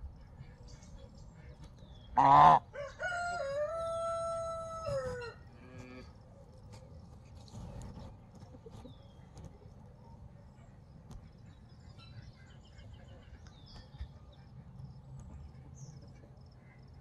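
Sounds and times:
harsh rooster call: 2.2s - 6.1s
rooster crowing: 2.4s - 5.5s.

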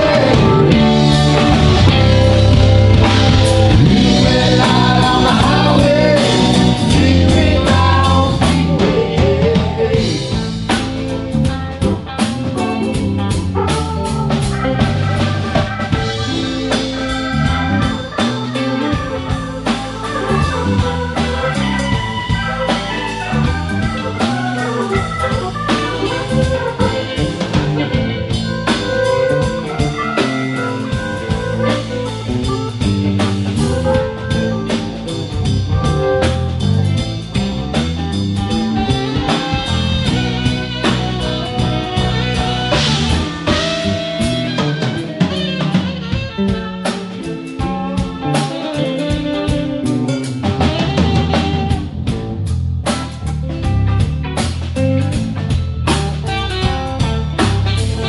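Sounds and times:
live rock band playing: 0.0s - 58.0s.

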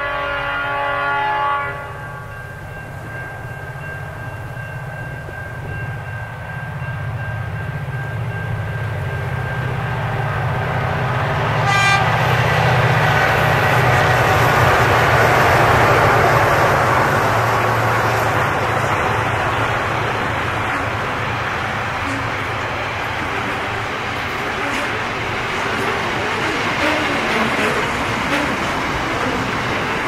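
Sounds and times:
short train horn toot: 0.0s - 2.4s, 11.6s - 12.2s, 26.8s - 27.2s
train horn: 0.0s - 2.4s, 11.4s - 16.0s, 21.8s - 22.6s, 24.6s - 25.1s, 26.7s - 28.6s
diesel train engine rumble: 0.0s - 30.0s.

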